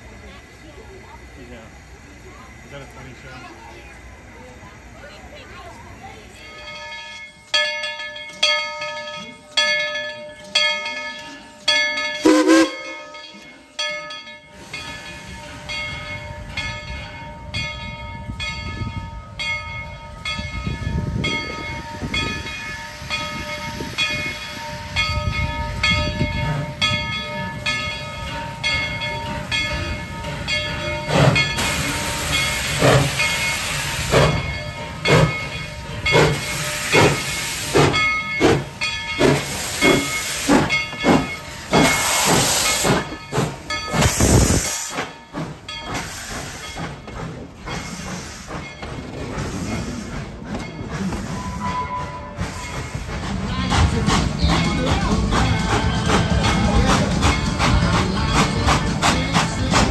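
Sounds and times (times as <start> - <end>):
steam locomotive chuffing: 0.0 - 59.9
locomotive bell ringing: 4.4 - 59.9
steam hiss: 14.4 - 16.6, 21.1 - 59.9.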